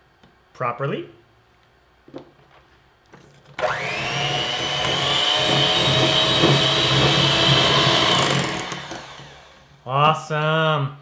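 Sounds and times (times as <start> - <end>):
beaters running through dough: 3.6 - 9.5
electric hand mixer whining: 3.6 - 9.8.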